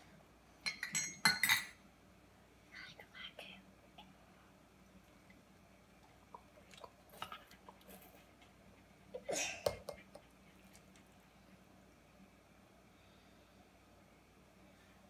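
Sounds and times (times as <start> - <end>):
glass clinking on steel bowl: 0.6 - 1.8.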